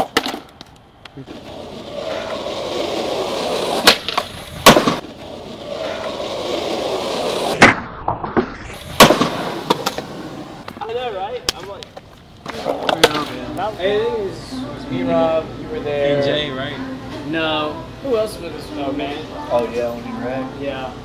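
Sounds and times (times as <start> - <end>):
skateboard wheels rolling on concrete: 0.0 - 7.7, 8.3 - 14.3
skateboard landing: 0.0 - 13.4
skateboard tail pop: 3.8 - 5.0, 7.5 - 10.8
skateboard clacks: 9.0 - 13.3.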